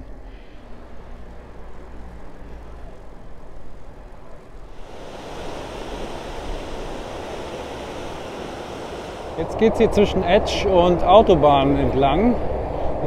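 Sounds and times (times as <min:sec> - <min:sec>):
wind rumble on microphone: 0:04.6 - 0:13.0
stony river rushing over rapids: 0:04.7 - 0:09.7.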